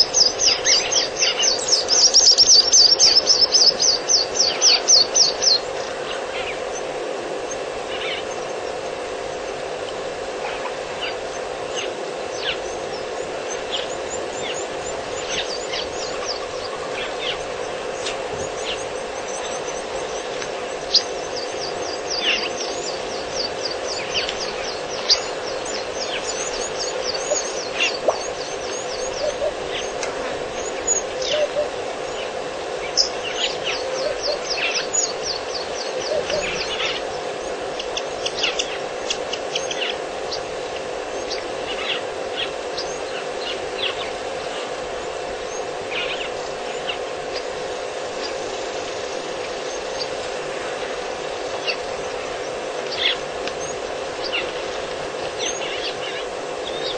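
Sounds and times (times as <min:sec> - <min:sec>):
birds chirping: 0:00.0 - 0:56.9
steady low hum: 0:00.0 - 0:56.9.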